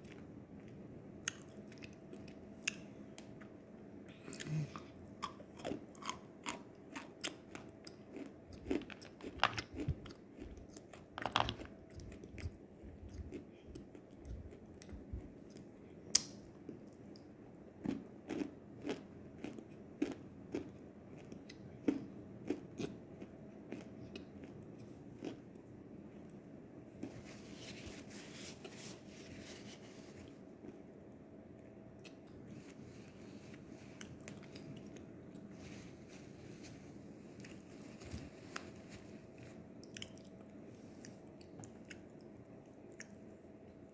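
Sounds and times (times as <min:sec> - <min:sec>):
chewing clay crunches: 0:04.2 - 0:17.2.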